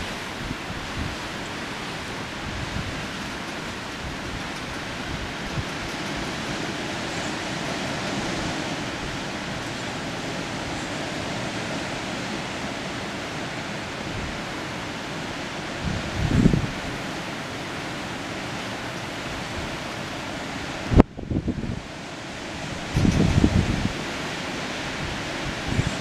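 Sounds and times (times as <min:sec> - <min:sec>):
wind buffeting microphone: 0:00.0 - 0:12.4, 0:15.6 - 0:17.1, 0:19.2 - 0:26.0
steady wind hiss: 0:00.0 - 0:26.0.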